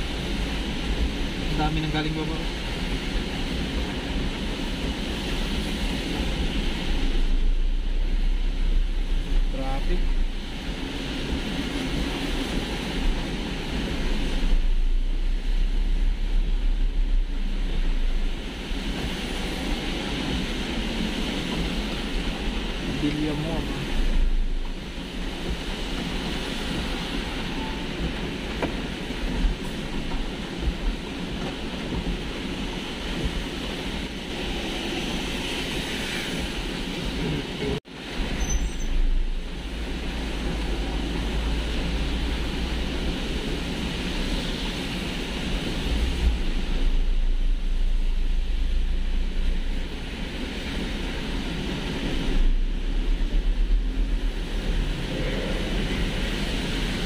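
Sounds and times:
low car rumble: 0.0 - 32.4
tyres hissing on wet road: 0.0 - 57.0.

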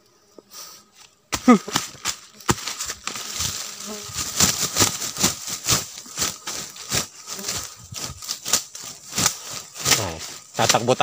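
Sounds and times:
brush rustling: 0.4 - 11.0
footsteps crunching dry leaves: 1.3 - 11.0.

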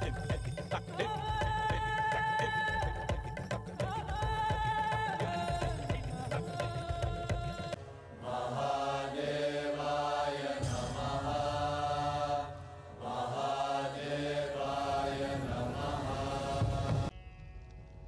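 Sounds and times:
drum beat: 0.0 - 7.8.

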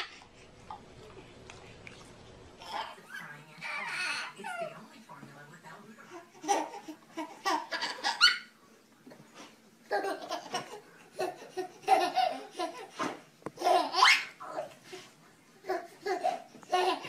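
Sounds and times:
baby laughing: 2.6 - 4.7, 6.3 - 8.5, 9.8 - 14.8, 15.6 - 17.0.

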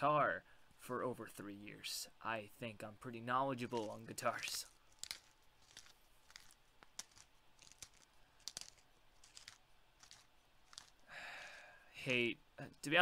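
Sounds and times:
faint irregular clicks: 3.7 - 11.1.

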